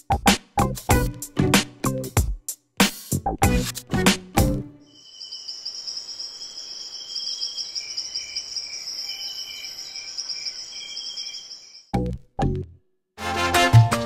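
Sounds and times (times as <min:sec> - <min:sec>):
music beat: 0:00.0 - 0:04.6
insect pulsing chirp: 0:04.9 - 0:11.9
insects buzzing trill: 0:04.9 - 0:11.9.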